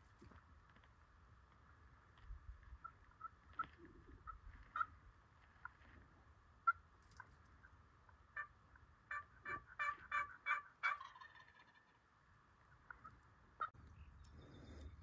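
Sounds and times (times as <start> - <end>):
turkey yelping: 2.8 - 5.0, 8.1 - 12.0, 12.7 - 13.8.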